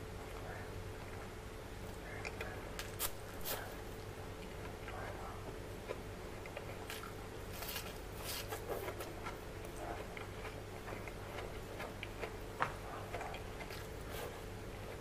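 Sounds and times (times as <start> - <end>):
wet chewing: 4.4 - 15.0.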